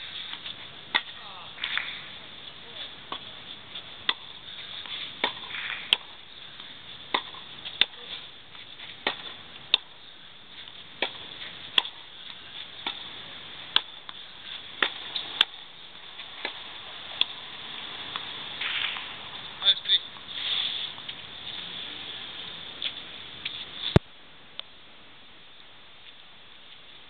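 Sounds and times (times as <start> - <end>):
racket striking tennis ball: 0.9 - 1.9, 4.0 - 6.2, 7.1 - 8.0, 8.8 - 10.0, 10.6 - 12.1, 12.8 - 16.6, 18.0 - 19.1
tennis ball bouncing: 0.9 - 1.9, 4.0 - 10.0, 10.6 - 19.5.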